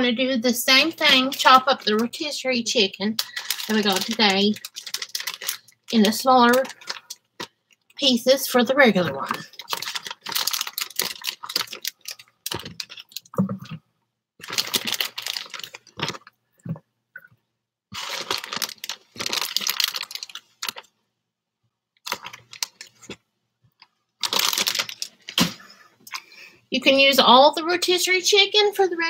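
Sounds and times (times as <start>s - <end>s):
plastic bag crinkling: 0.7s - 13.8s, 14.4s - 16.8s, 17.9s - 20.9s, 22.0s - 23.2s, 24.2s - 25.7s.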